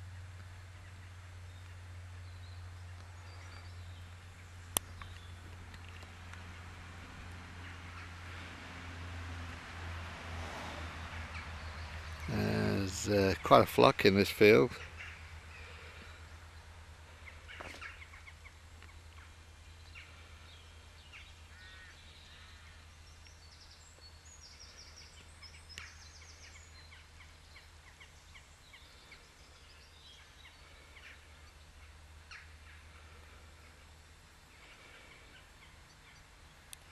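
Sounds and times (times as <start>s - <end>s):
birds chirping and trilling: 0.8s - 6.7s, 11.2s - 36.8s.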